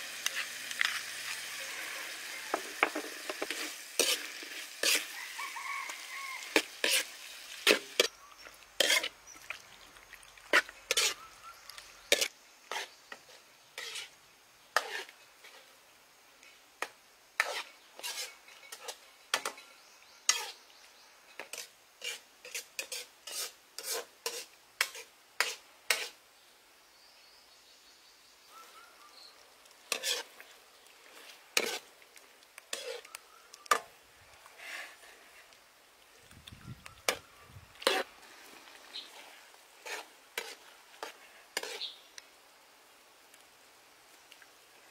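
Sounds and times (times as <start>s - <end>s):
metal ladle scraping a wok: 0.1s - 9.2s, 10.5s - 14.1s, 14.8s - 15.7s, 17.4s - 19.6s, 20.3s - 20.6s, 21.4s - 26.2s, 29.9s - 31.9s, 32.7s - 33.1s, 37.0s - 38.1s, 39.0s - 42.0s.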